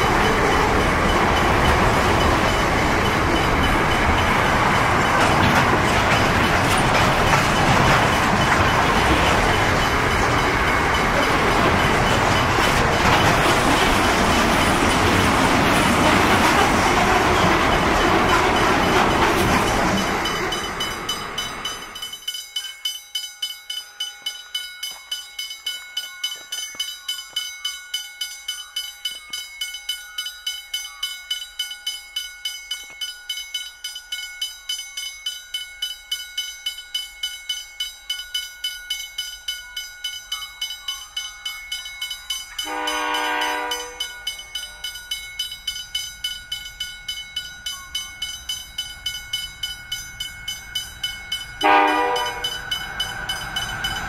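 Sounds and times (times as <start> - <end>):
level crossing bell ringing: 0.0 - 54.0
locomotive horn blast: 42.6 - 44.0, 51.6 - 52.6.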